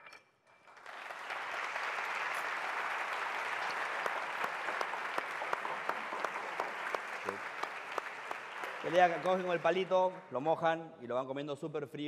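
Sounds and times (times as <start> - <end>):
audience applauding: 0.7 - 10.2.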